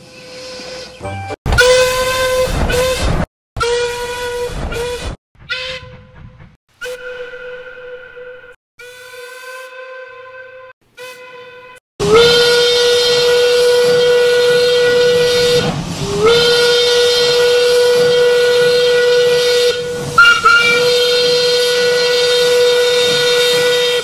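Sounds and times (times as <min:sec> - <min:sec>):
steam locomotive whistle: 0:00.0 - 0:06.2, 0:06.8 - 0:24.0
short whistle pip: 0:06.8 - 0:10.0, 0:20.2 - 0:21.1.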